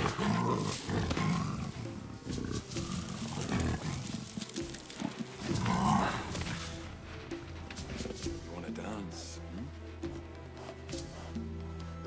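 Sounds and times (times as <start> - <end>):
leopard growling: 0.0 - 7.1.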